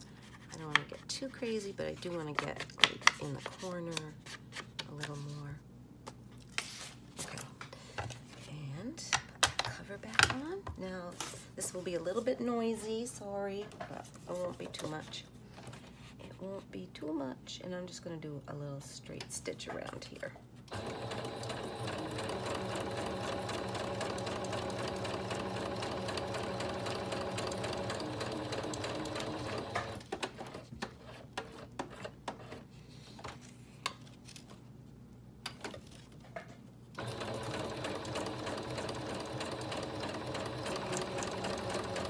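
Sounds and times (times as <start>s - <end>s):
sewing machine running: 20.7s - 30.1s, 37.0s - 42.0s.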